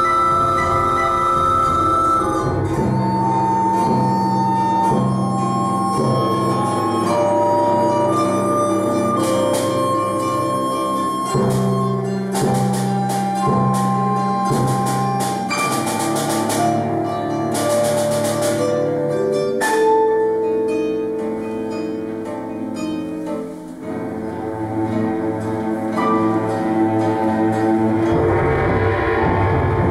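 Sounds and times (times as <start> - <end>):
sharp struck notes: 0.0 - 29.9.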